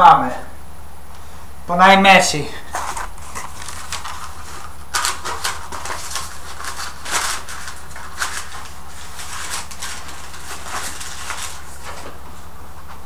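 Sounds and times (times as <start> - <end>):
steady low hum: 0.0 - 13.0
rustling and handling noises: 2.6 - 13.0.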